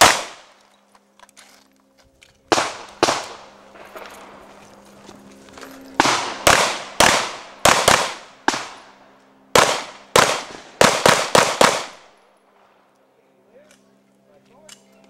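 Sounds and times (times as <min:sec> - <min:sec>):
pistol shots: 0:00.0 - 0:00.6, 0:02.5 - 0:04.3, 0:06.0 - 0:12.1.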